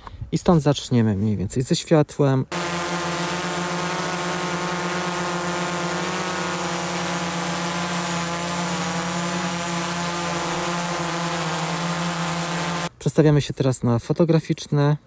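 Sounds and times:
drone propellers buzzing: 2.5s - 12.9s.

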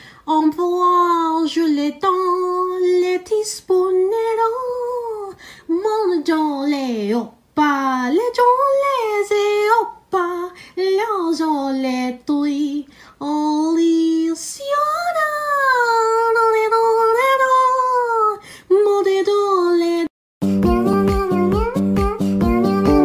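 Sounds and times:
high voice singing slow melody: 19.8s - 23.0s
plucked guitar music: 20.4s - 23.0s.

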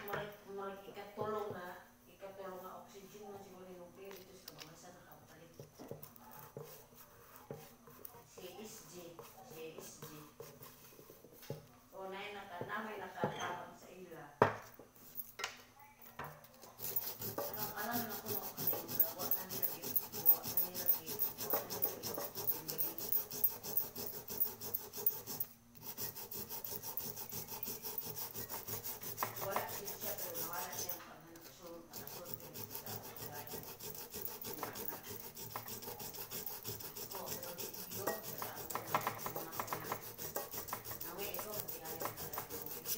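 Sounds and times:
abrasive rubbing metal pot: 16.8s - 31.0s, 31.8s - 42.9s.

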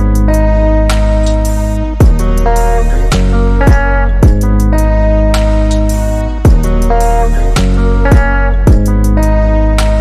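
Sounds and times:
held synth chords: 0.0s - 10.0s
deep kick drum: 2.0s - 2.4s, 3.2s - 4.6s, 6.4s - 6.7s, 8.1s - 9.0s.

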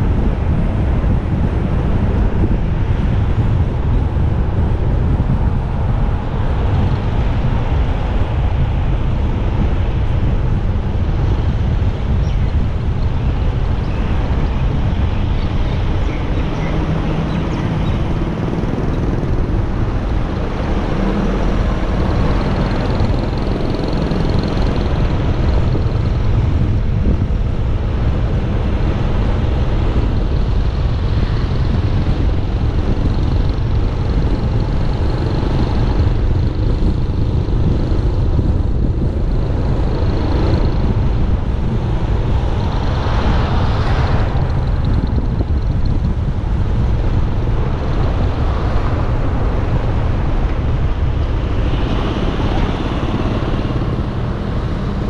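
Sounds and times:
motorcycle road noise: 0.0s - 55.0s
wind rumble: 0.0s - 55.0s.

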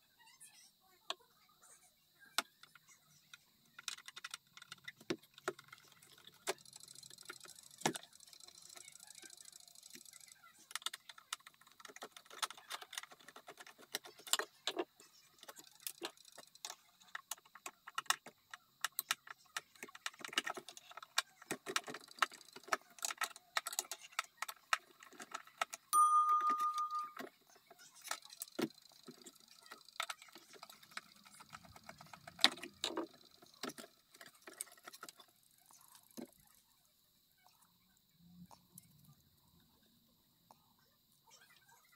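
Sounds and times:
clock chime bell ringing: 26.0s - 27.2s.

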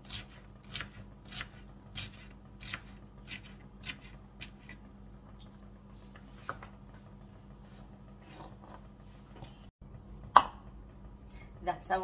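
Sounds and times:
knife chopping onion on board: 0.0s - 4.8s.

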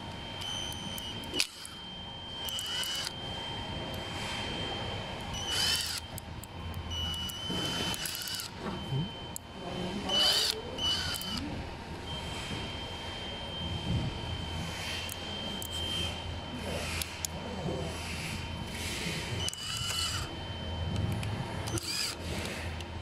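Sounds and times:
cordless drill running: 0.4s - 1.8s, 2.4s - 3.2s, 5.3s - 6.2s, 6.9s - 8.6s, 10.1s - 11.4s, 19.4s - 20.3s, 21.7s - 22.4s.

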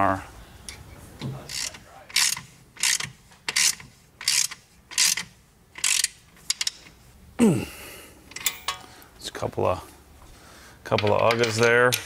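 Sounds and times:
ratchet wrench clicking: 1.5s - 6.8s.

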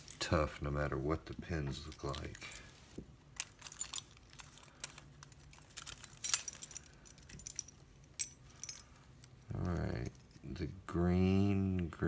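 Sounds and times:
keys jingling: 1.8s - 9.4s.

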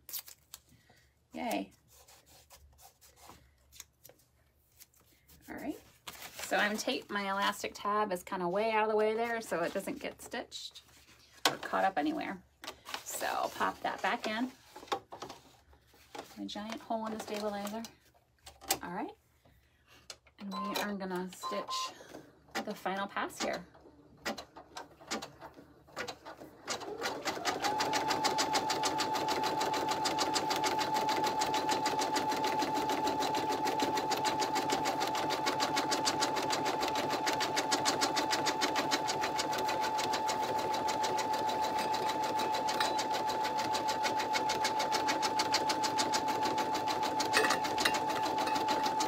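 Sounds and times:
embroidery machine stitching: 23.4s - 49.0s.

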